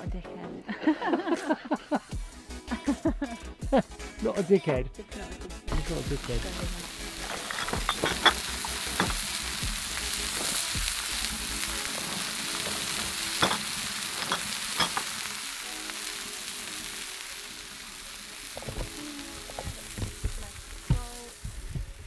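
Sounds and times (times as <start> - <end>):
burger patties sizzling: 5.7 - 22.0.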